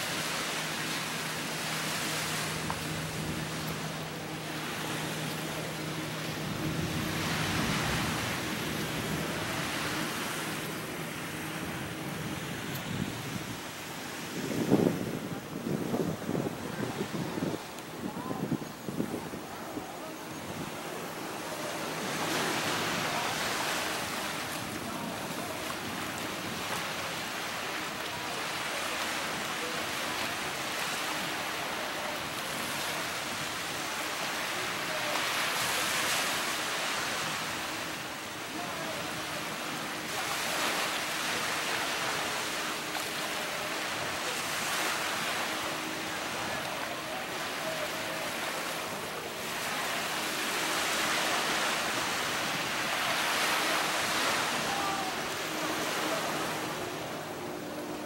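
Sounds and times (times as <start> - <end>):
small waves breaking on shore: 0.0 - 58.0.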